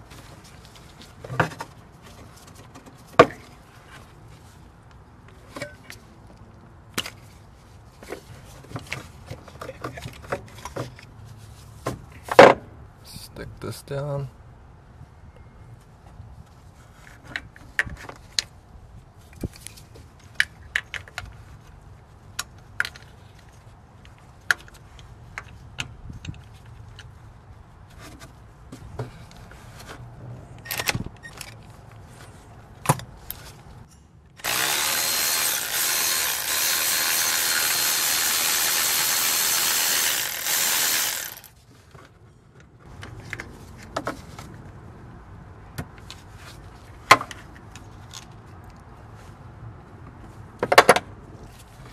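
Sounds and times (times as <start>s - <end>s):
electric ratchet running: 34.4s - 41.5s.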